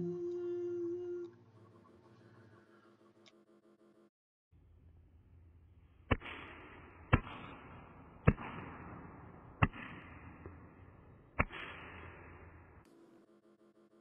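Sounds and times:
gunshots: 0:06.0 - 0:12.8.

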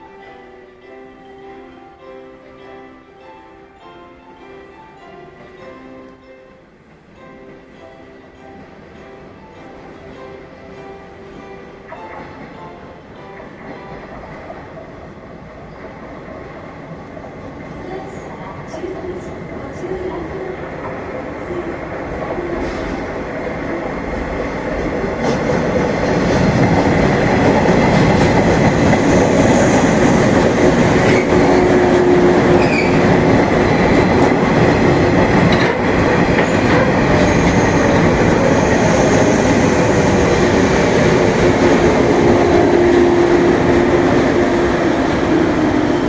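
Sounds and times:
train wheels rumbling on rails: 0:13.4 - 0:46.0.

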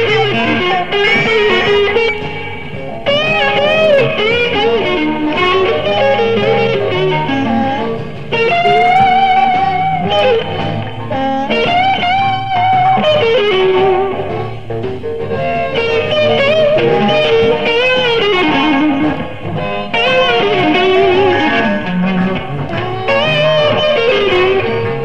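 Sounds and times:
blues band playing: 0:00.0 - 0:25.0
electric guitar with vibrato: 0:00.0 - 0:25.0.

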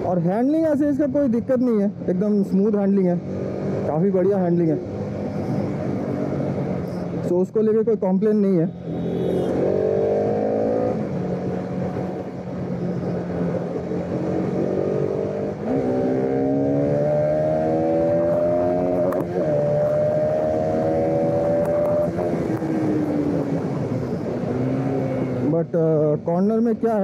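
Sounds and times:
motorcycle engine accelerating: 0:08.8 - 0:25.5.

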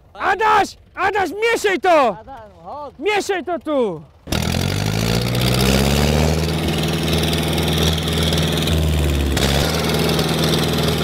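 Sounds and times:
tractor diesel engine under load: 0:00.0 - 0:11.0.

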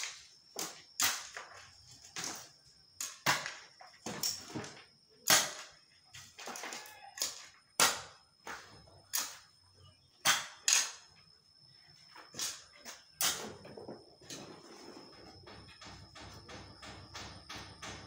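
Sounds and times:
hoe chopping soil and stones: 0:03.0 - 0:06.6.

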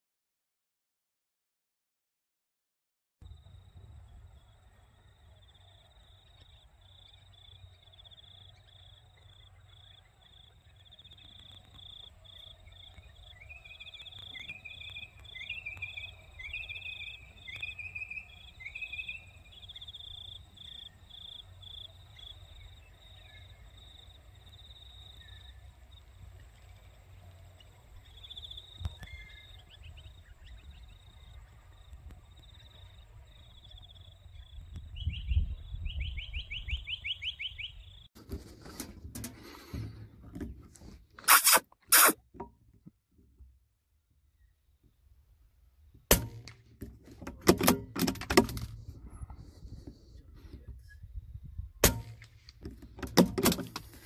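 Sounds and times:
insect chirping: 0:03.2 - 0:38.1
bird calling: 0:04.4 - 0:23.7, 0:36.0 - 0:38.1
bird trill: 0:04.4 - 0:24.0, 0:32.5 - 0:38.1
wind rumbling on microphone: 0:28.8 - 0:38.0, 0:48.5 - 0:51.8.

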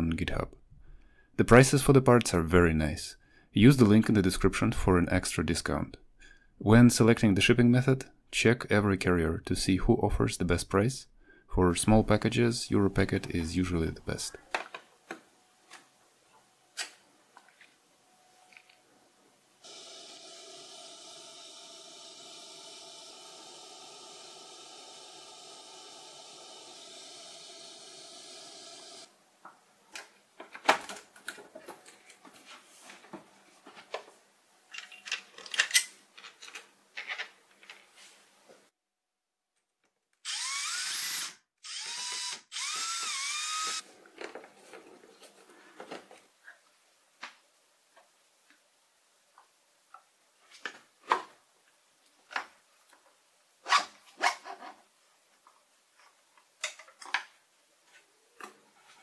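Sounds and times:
cordless drill motor whine: 0:19.6 - 0:29.1, 0:40.3 - 0:43.8.

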